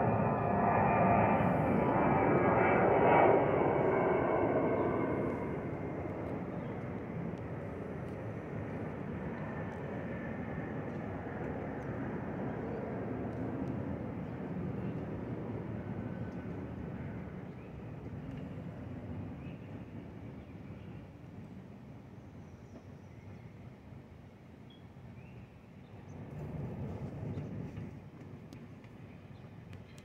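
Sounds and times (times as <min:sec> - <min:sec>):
jet airliner passing overhead: 0:00.0 - 0:21.2, 0:26.0 - 0:28.4.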